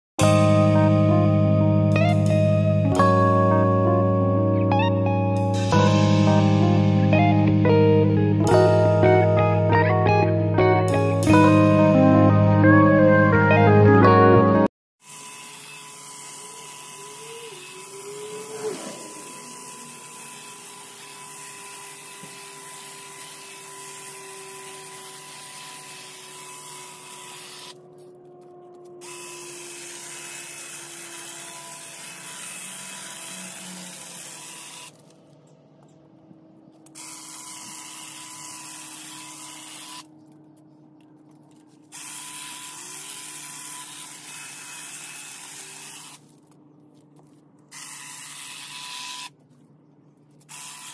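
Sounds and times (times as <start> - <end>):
hedge trimmer running: 15.0 - 27.8, 29.0 - 35.2, 36.7 - 40.1, 41.4 - 46.4.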